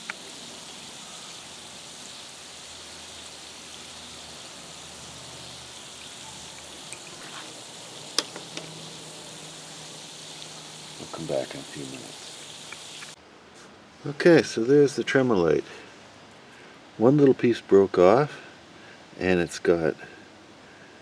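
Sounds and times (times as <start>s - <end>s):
acid fizzing on rock: 0.0s - 13.2s.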